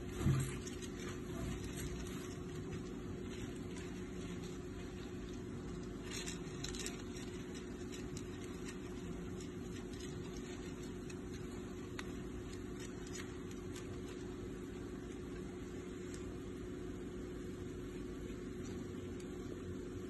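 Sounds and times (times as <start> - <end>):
hamster scratching and clicking: 0.0 - 17.1, 17.7 - 20.0
steady low hum: 0.0 - 20.0.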